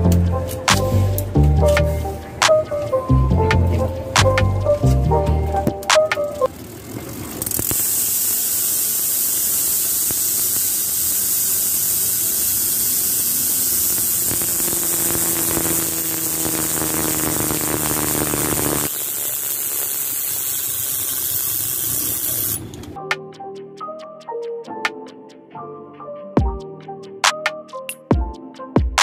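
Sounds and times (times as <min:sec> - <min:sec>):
bicycle hub freewheel buzzing: 0:00.0 - 0:23.0
faint whine: 0:13.2 - 0:18.9.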